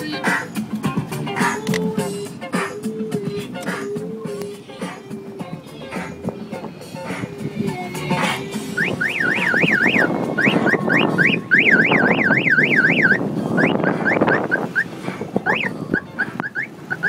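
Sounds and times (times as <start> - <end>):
rumbling car noise: 0.0 - 17.0
siren yelping and whooping: 8.8 - 17.0.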